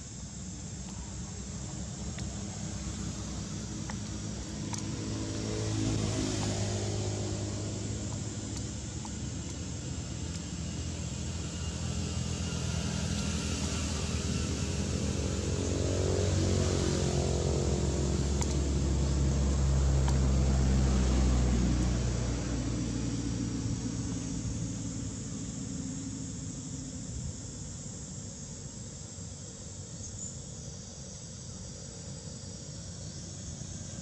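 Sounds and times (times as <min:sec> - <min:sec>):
passing vehicle engine: 0:02.2 - 0:27.0.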